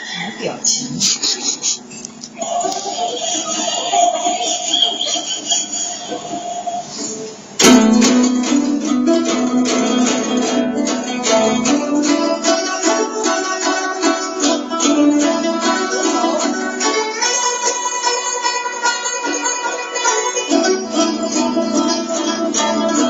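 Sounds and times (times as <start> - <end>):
plucked zither: 7.0 - 23.0.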